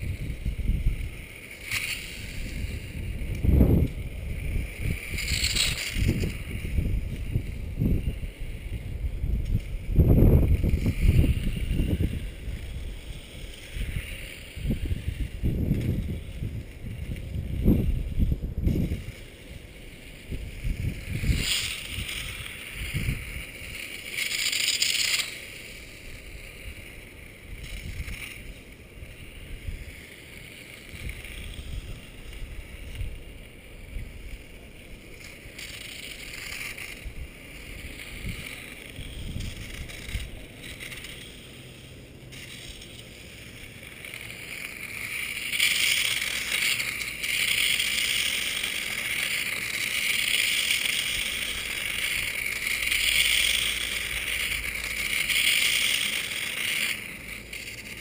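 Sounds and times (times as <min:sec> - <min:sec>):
wind buffeting microphone: 0:00.0 - 0:01.3, 0:02.2 - 0:19.2, 0:20.0 - 0:23.8, 0:36.2 - 0:40.5
toy motorcycle electric motor whir: 0:00.0 - 0:58.0.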